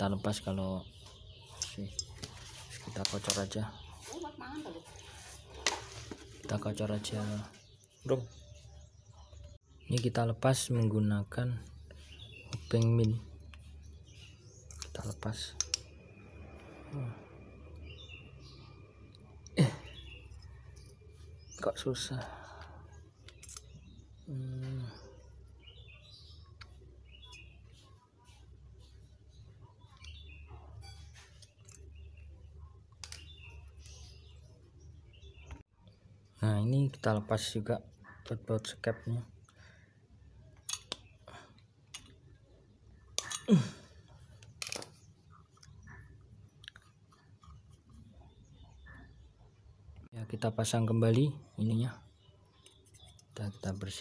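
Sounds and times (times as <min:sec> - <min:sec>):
small birds chirping: 0:00.0 - 0:54.0
metal part clicks: 0:40.6 - 0:41.0.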